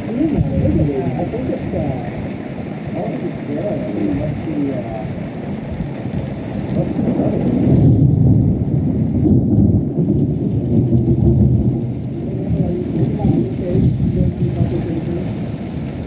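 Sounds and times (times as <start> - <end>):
heavy rain falling: 0.0 - 16.0
thunder rumbling: 0.0 - 16.0.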